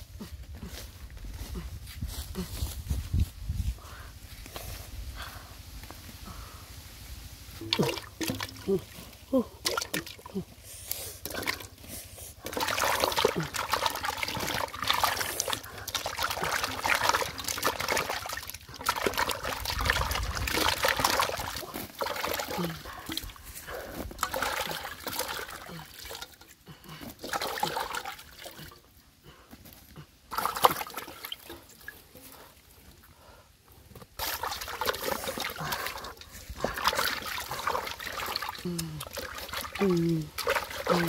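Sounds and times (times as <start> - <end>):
water sloshing in metal pot: 7.6 - 10.5, 11.2 - 23.4, 24.0 - 28.8, 30.3 - 32.6, 34.2 - 41.0.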